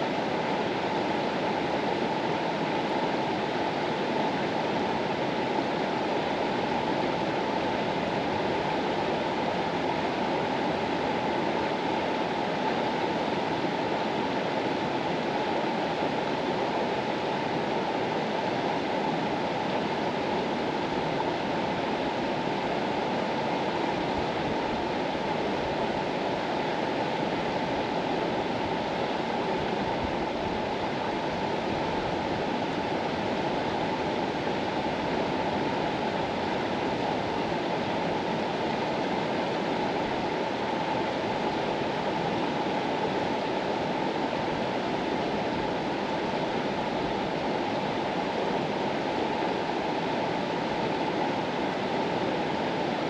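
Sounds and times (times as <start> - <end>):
mountain river rushing: 0.0 - 53.0.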